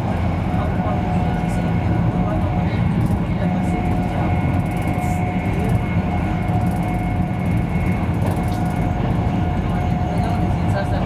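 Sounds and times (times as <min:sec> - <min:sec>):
train wheels rumbling on rail: 0:00.0 - 0:11.0.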